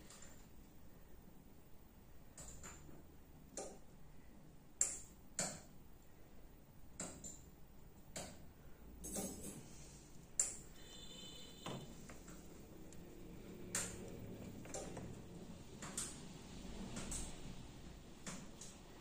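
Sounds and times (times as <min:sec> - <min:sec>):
faint high ringing: 0:10.7 - 0:12.1.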